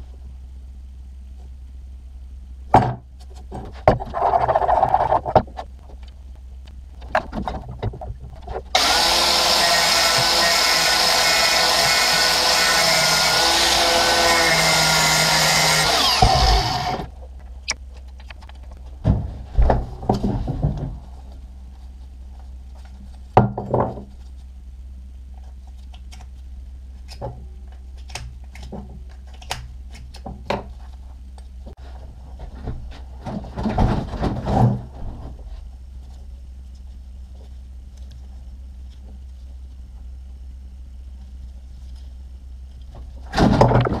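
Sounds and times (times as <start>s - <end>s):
low steady hum: 0.0s - 44.0s
angle grinder grinding metal: 8.8s - 17.1s.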